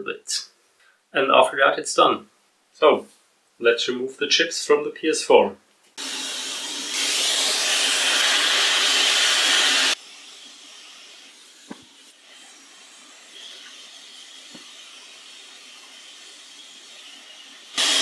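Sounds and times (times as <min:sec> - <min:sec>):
hot air station hissing: 0:06.0 - 0:18.0.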